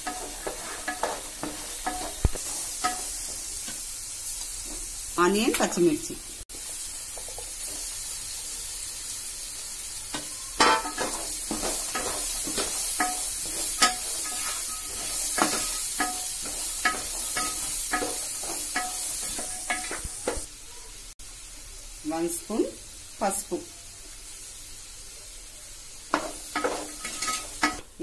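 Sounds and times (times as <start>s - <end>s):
wooden spoon scraping a pot: 0.0s - 2.6s
vegetables sizzling in oil: 0.0s - 28.0s.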